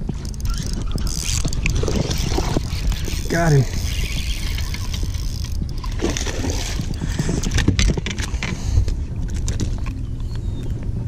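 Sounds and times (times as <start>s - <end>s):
wind rumbling on microphone: 0.0s - 11.0s
spinning reel reeling in: 0.2s - 7.6s.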